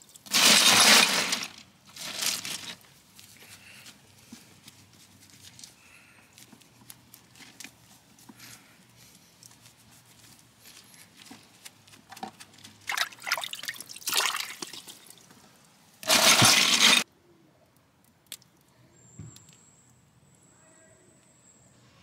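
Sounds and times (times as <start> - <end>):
water sloshing in a bucket: 12.8 - 15.3, 16.0 - 17.0.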